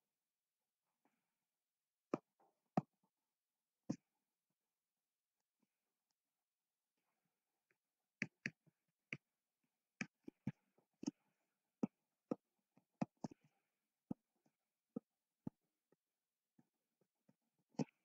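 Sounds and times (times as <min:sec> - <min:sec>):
stylus tapping on tablet screen: 0:08.2 - 0:09.3, 0:10.0 - 0:14.3.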